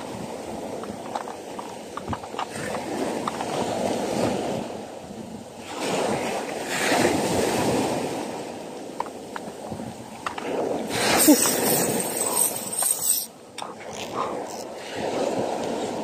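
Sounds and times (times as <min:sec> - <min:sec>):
surf washing onto sand: 0:00.0 - 0:11.9
wind buffeting microphone: 0:00.0 - 0:16.0.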